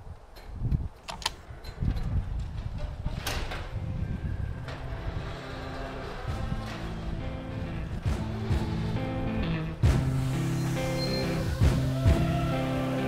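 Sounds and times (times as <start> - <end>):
garage door rolling up: 1.5 - 13.0
faint music: 2.6 - 13.0.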